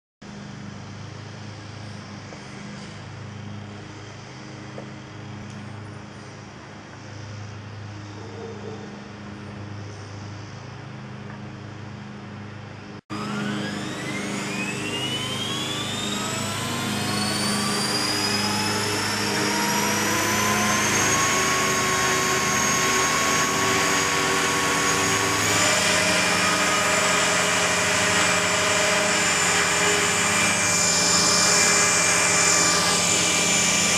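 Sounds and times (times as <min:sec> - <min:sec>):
rc helicopter rotor whine: 0:08.6 - 0:33.9.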